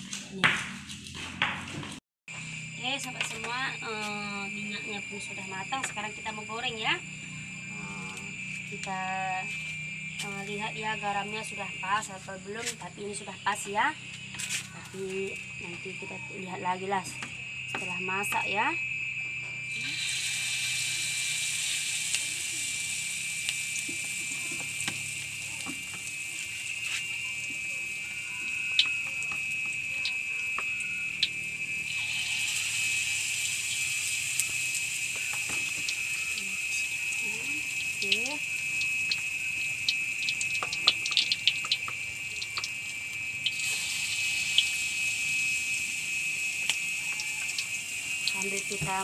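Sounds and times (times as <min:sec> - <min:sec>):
batter sizzling in hot oil: 0:19.7 - 0:49.0.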